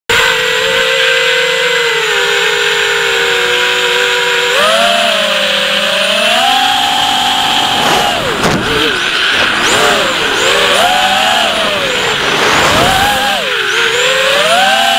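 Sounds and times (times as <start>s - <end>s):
drone motors whining: 0.1s - 14.9s.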